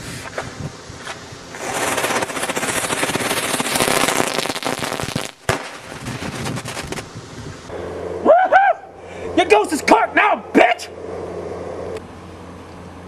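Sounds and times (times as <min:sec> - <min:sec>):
firework hissing and crackling: 0:00.0 - 0:09.4.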